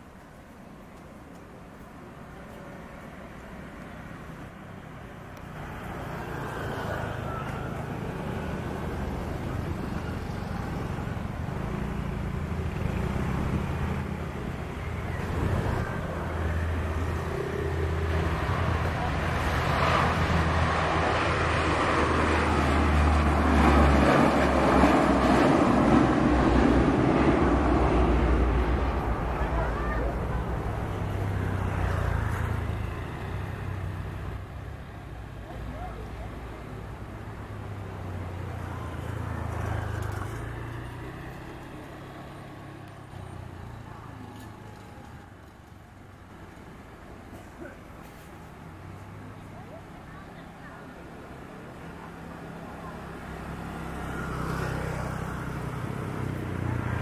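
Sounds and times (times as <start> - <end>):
low propeller drone: 0.0 - 45.8
turboprop engines at takeoff power: 14.3 - 30.9.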